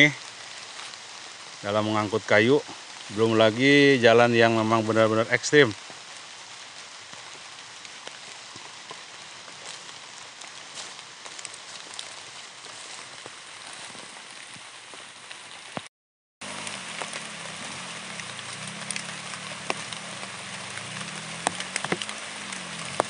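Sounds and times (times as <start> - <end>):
drizzle hissing on foliage: 0.0 - 15.8, 16.4 - 23.0
drops ticking on leaves: 0.0 - 23.0
distant motorcycle engine hum: 16.4 - 23.0.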